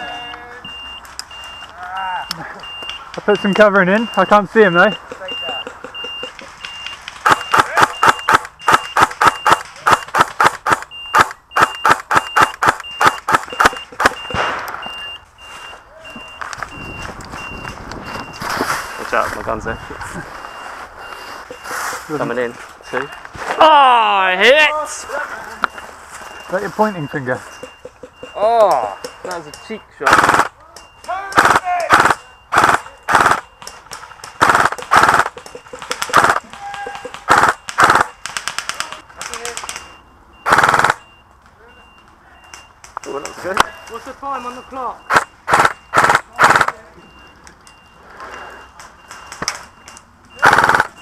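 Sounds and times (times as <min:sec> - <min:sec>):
faint high electronic beep: 0:00.0 - 0:10.1, 0:10.9 - 0:24.6, 0:25.6 - 0:30.0
airsoft rifle automatic bursts: 0:07.2 - 0:14.6, 0:30.0 - 0:30.5, 0:31.4 - 0:33.5, 0:34.3 - 0:36.5, 0:37.3 - 0:38.8, 0:40.4 - 0:41.0, 0:45.1 - 0:46.8, 0:50.4 - 0:51.0
rustling movement: 0:13.2 - 0:23.6, 0:24.8 - 0:28.4.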